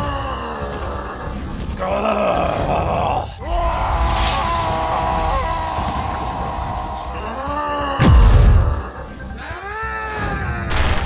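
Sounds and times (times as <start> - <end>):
creature-like cry: 2.0 - 9.0.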